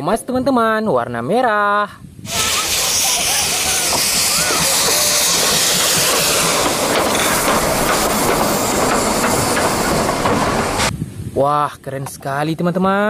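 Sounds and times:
steam hissing: 2.3s - 10.9s.

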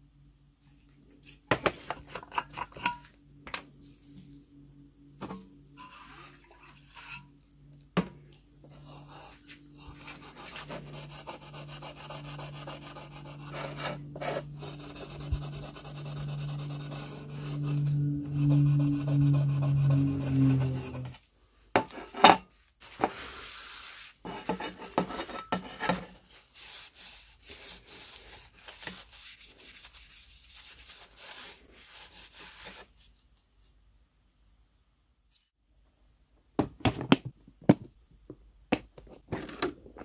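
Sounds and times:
steel wool scrubbing metal: 5.7s - 7.4s, 8.4s - 21.2s.

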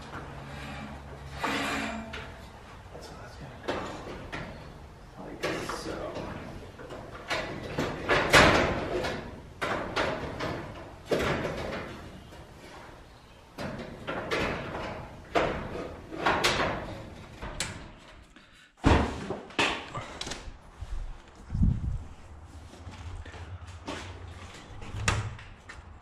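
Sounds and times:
metal sliding scrapes: 0.2s - 2.6s
metal door track clanking: 5.4s - 12.3s, 13.6s - 18.0s.

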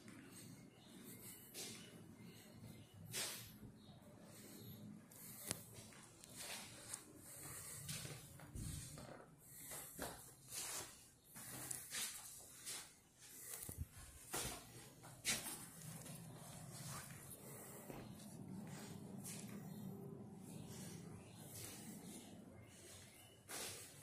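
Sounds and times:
footsteps on floor: 7.4s - 16.2s, 22.9s - 24.0s.

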